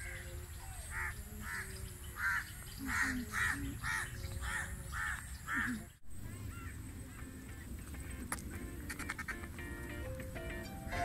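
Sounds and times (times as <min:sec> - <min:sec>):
crow cawing: 0:00.9 - 0:05.8.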